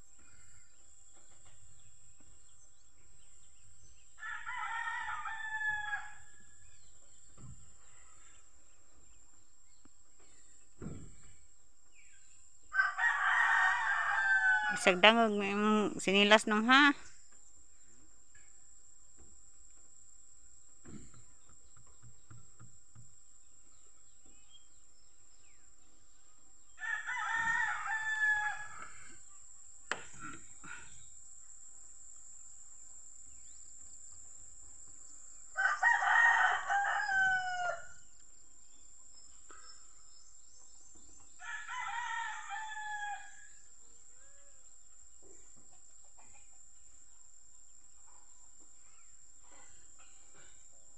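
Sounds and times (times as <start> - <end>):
rooster crowing: 4.2 - 6.4, 12.7 - 15.0, 26.8 - 29.2, 35.6 - 38.0, 41.4 - 43.6.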